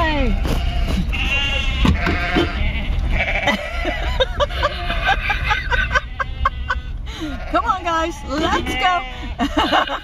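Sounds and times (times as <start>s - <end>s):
sheep bleating: 0.0s - 9.4s
low steady rumble: 0.0s - 10.0s.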